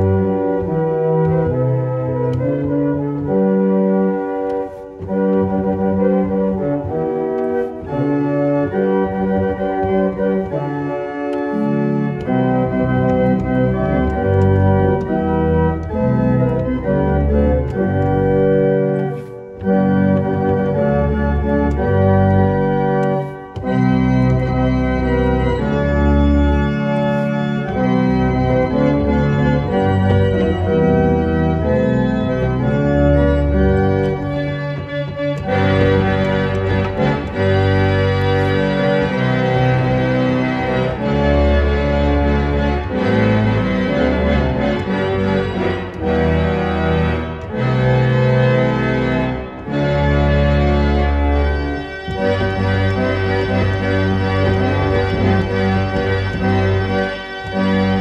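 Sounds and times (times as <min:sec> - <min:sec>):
pipe organ playing chords: 0:00.0 - 0:58.0.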